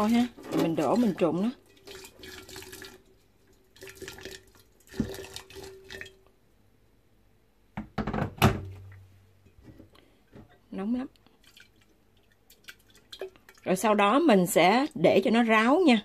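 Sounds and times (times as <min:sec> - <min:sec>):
boiling water pouring into jar: 0:00.0 - 0:06.3
loud clatter of knocks: 0:07.8 - 0:08.7.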